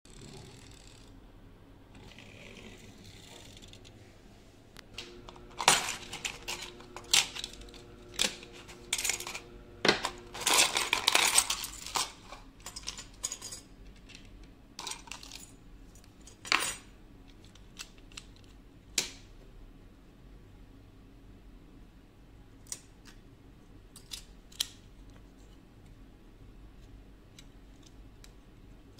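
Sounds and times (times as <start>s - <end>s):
small parts clattering in plastic bowl: 5.0s - 15.5s.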